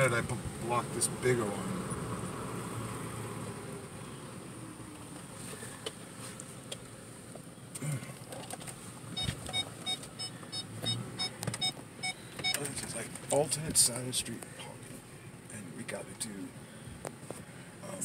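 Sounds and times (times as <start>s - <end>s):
engine and fan hum: 0.0s - 18.0s
car warning chime beeping: 9.1s - 12.8s.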